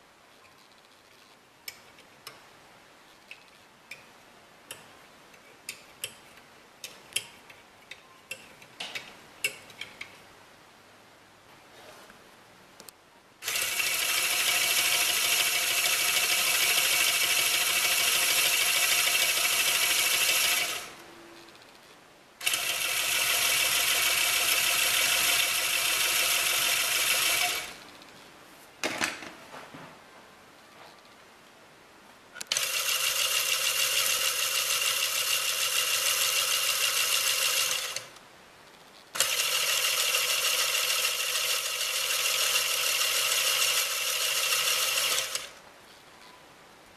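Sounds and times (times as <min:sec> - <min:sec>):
toy electric motor whirring rattle: 0:13.4 - 0:20.9, 0:22.4 - 0:28.0, 0:32.5 - 0:38.1, 0:39.2 - 0:45.6.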